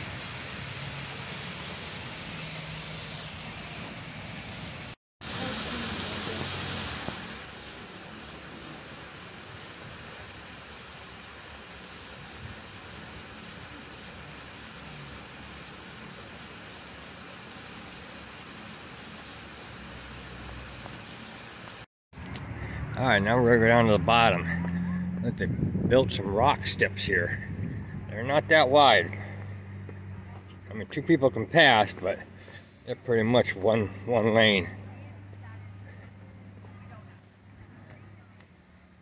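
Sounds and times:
waterfall rushing: 0:00.0 - 0:21.9.

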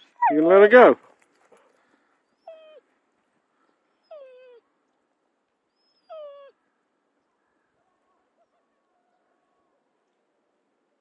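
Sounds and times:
dog yelping: 0:05.8 - 0:06.6.

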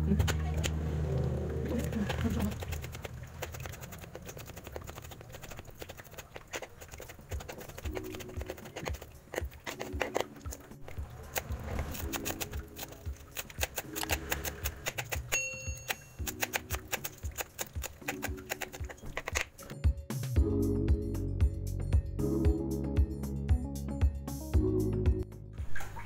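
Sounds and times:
soft background music: 0:06.5 - 0:26.0
short chime: 0:15.4 - 0:16.2.

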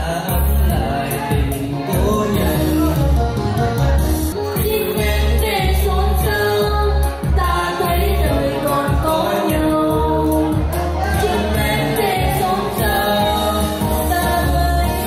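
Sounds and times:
amplified backing music with bass: 0:00.0 - 0:15.0.

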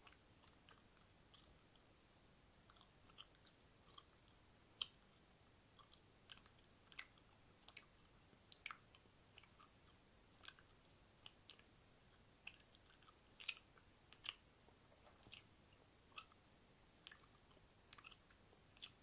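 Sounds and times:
wet mouth clicks and smacks: 0:02.7 - 0:04.2, 0:04.8 - 0:05.0, 0:05.8 - 0:09.8, 0:10.4 - 0:14.4, 0:15.0 - 0:15.5, 0:17.0 - 0:19.0.

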